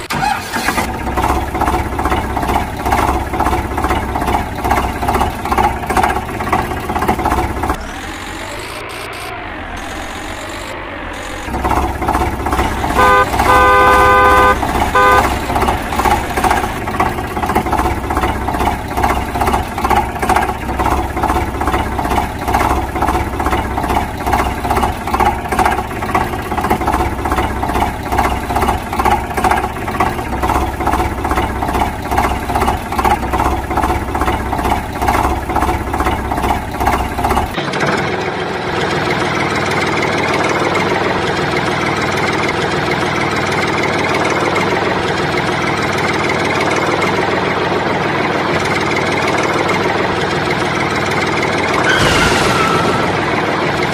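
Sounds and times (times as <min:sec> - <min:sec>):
steady engine hum: 0:00.0 - 0:53.9
rhythmic chugging engine: 0:00.1 - 0:53.9
vehicle horn honking: 0:12.8 - 0:16.6.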